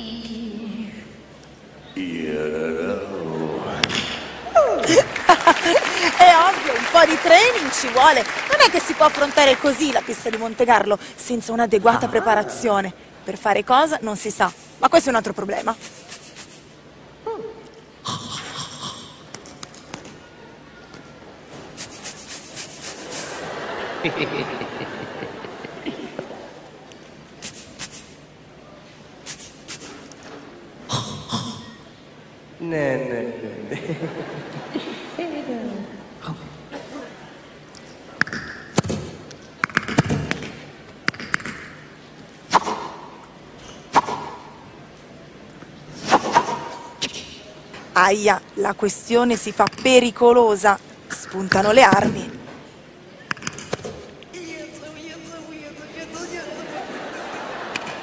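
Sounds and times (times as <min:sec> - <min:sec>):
noisy vocal burst: 0:02.0 - 0:05.0, 0:15.6 - 0:16.8, 0:18.0 - 0:19.3, 0:27.4 - 0:28.2, 0:29.3 - 0:30.1, 0:30.8 - 0:32.0.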